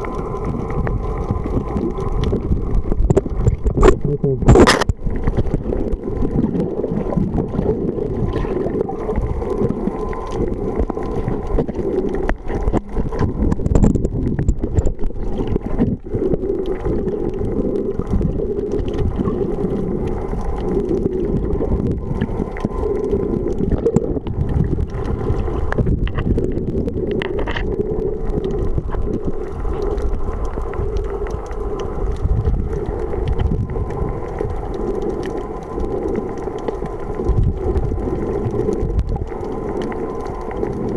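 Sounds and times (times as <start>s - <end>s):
small clicks underwater: 0.0s - 40.9s
underwater low rumble: 0.0s - 40.9s
water gurgling: 0.0s - 40.9s.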